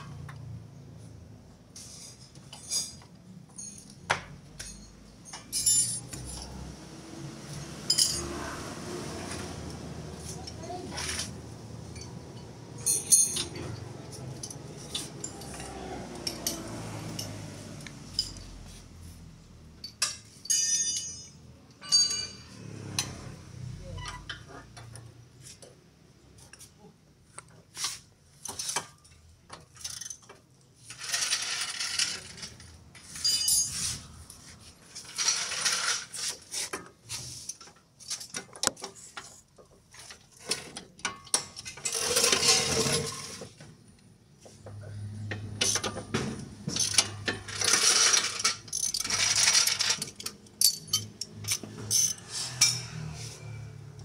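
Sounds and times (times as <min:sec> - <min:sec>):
metal hand tools clinking: 0:11.9 - 0:17.4, 0:19.8 - 0:23.0, 0:33.0 - 0:33.9, 0:46.8 - 0:53.0.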